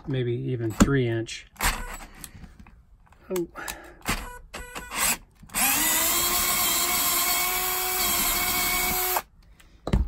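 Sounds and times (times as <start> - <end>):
cordless drill motor whine: 4.2 - 9.3.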